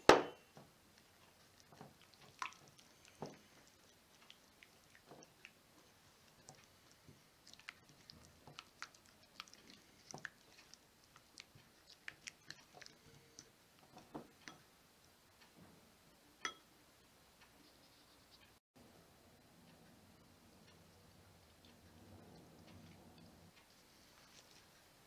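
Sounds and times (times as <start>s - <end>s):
sharp knock: 0.0s - 0.4s.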